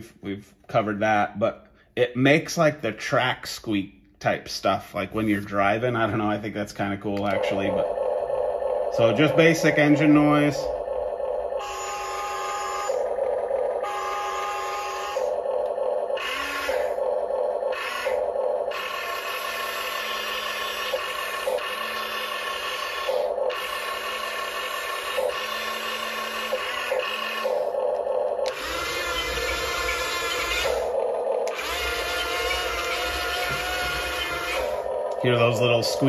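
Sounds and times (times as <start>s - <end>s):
toy engine noise from small speaker: 5.5s - 36.0s
small electric motors whining: 7.2s - 36.0s.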